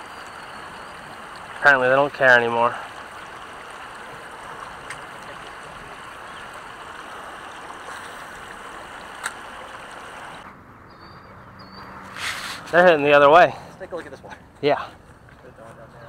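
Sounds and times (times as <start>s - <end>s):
running water hiss: 0.0s - 10.4s.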